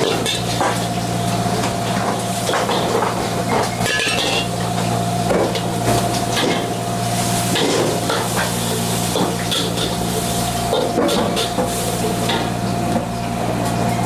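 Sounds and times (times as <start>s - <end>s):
food sizzling in a wok: 6.8s - 12.6s.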